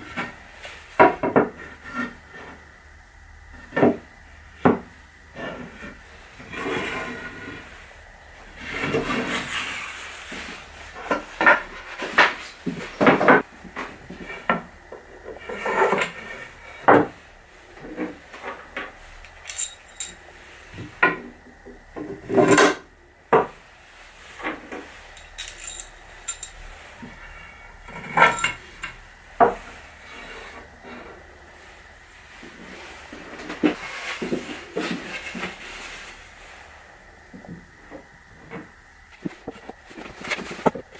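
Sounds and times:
metal pins clinking: 19.3s - 20.2s, 25.1s - 26.6s.

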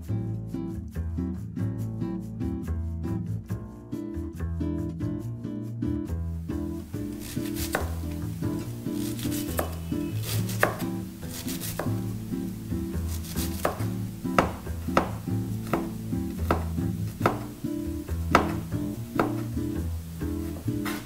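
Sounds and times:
background music: 0.0s - 21.0s
knife tapping on cutting board: 7.2s - 8.1s, 9.5s - 9.8s, 10.6s - 12.0s, 13.3s - 19.6s.

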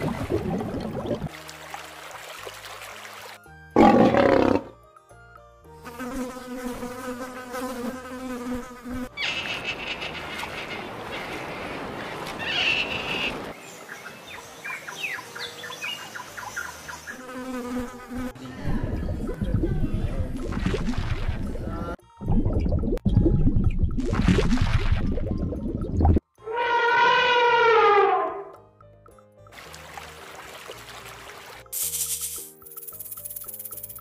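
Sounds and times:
housefly buzzing: 5.8s - 10.0s, 17.1s - 18.4s.

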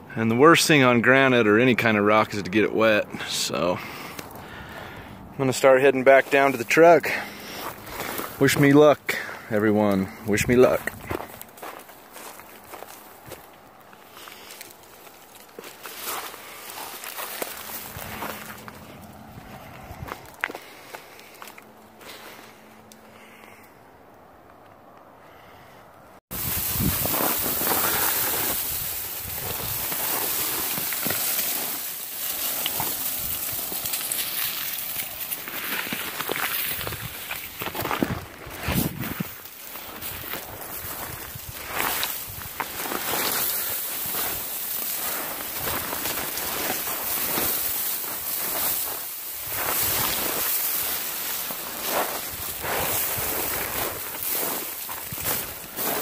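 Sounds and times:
brush rustling: 3.5s - 23.6s, 26.3s - 56.0s
footsteps crunching on rock and leaves: 5.5s - 22.9s, 26.3s - 56.0s
wind on microphone: 26.3s - 29.9s, 38.0s - 39.3s.

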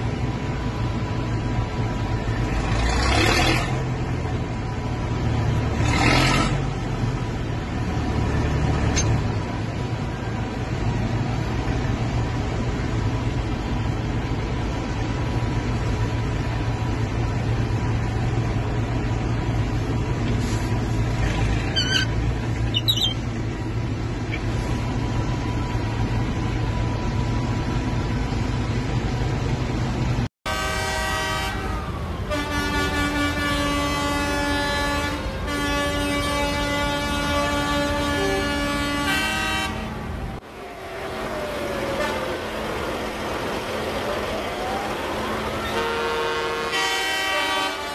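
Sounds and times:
vehicle horns blasting: 30.5s - 40.0s, 45.6s - 47.9s.

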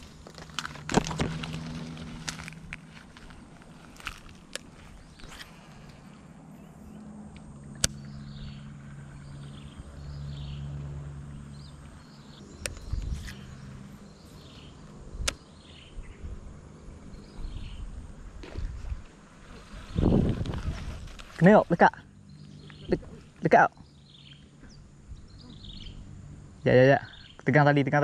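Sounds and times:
low droning hum: 0.0s - 28.0s
sharp clicks: 7.3s - 8.1s, 12.6s - 13.4s, 15.2s - 15.5s.

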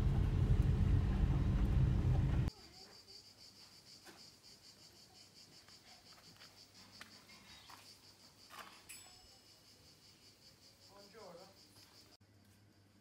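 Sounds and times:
insects chirping trill: 2.5s - 13.0s.

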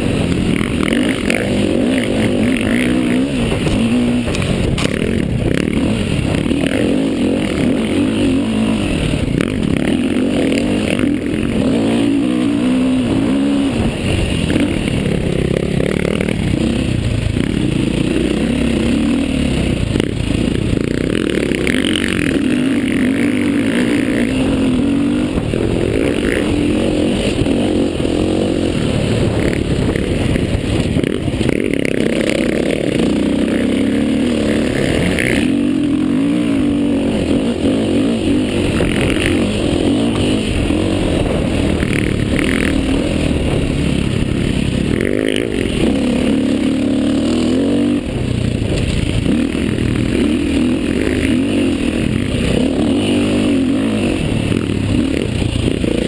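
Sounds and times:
dirt bike engine revving: 0.0s - 56.0s
chassis rattles and knocks: 3.4s - 6.4s.

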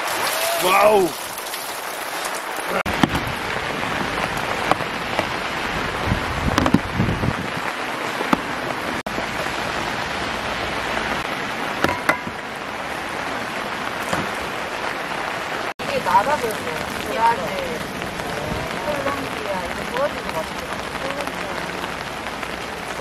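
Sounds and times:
heavy rain falling: 0.0s - 23.0s.

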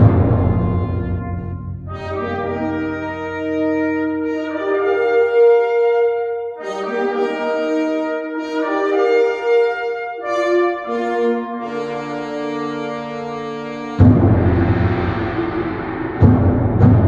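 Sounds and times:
low drum rumble: 0.0s - 2.4s, 14.0s - 17.0s
held brass chords: 0.0s - 17.0s.

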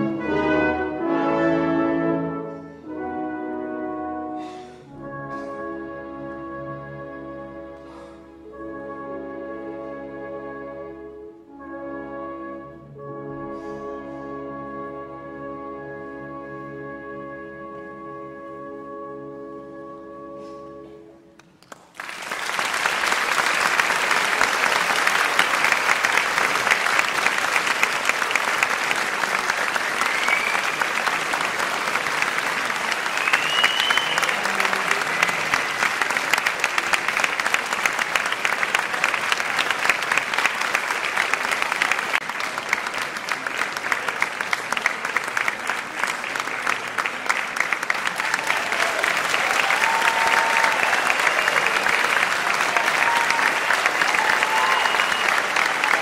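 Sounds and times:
audience applause: 21.4s - 56.0s.

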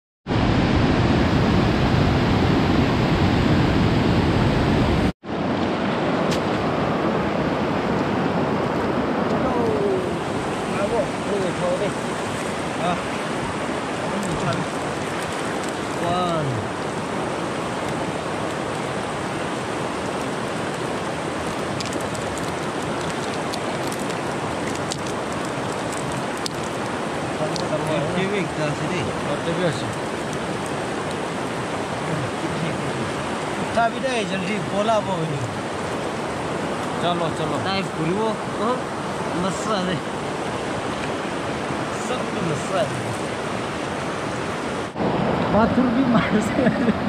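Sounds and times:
river rapids rushing: 0.3s - 47.0s
light clicks of pebbles: 21.7s - 26.9s.

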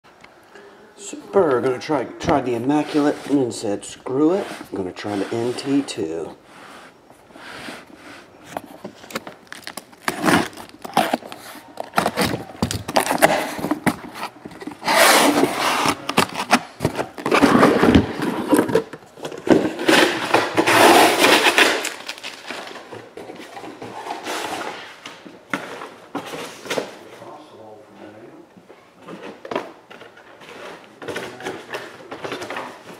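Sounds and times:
boxes knocking and rustling: 1.6s - 27.4s, 28.9s - 32.9s
cardboard and tape tearing: 2.3s - 6.2s, 7.8s - 26.9s.

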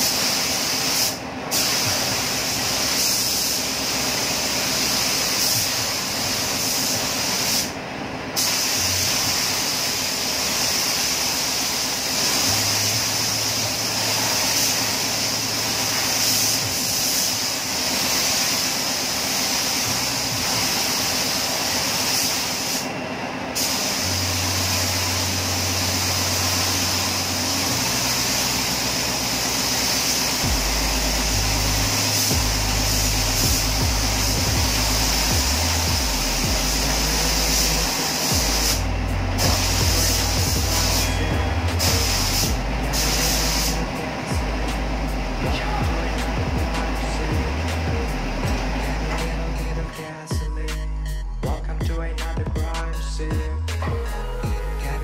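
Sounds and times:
paint spray gun hissing: 0.0s - 50.0s.

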